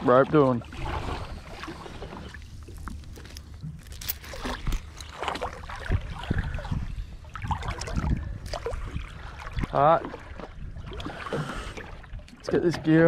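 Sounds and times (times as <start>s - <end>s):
seawater sloshing and splashing: 0.0s - 13.0s
wind rumbling on microphone: 0.7s - 12.2s.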